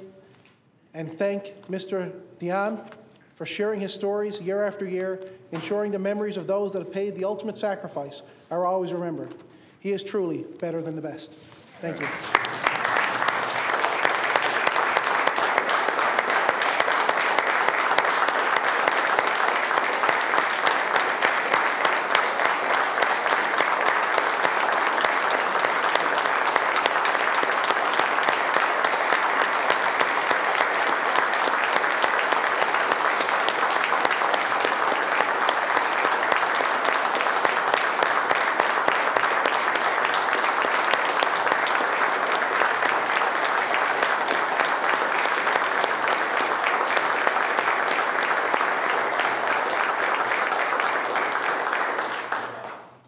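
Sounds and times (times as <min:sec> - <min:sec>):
crowd applauding: 0:11.8 - 0:53.0.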